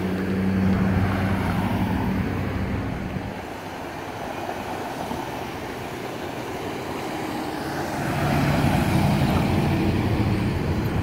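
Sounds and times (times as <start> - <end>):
cars crossing tracks: 0.0 - 11.0
pickup truck driving past: 3.0 - 11.0.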